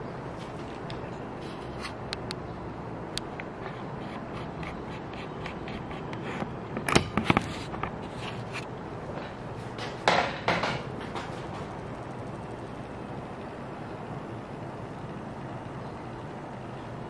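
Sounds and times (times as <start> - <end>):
louder clacks and knocks: 9.8 - 11.8.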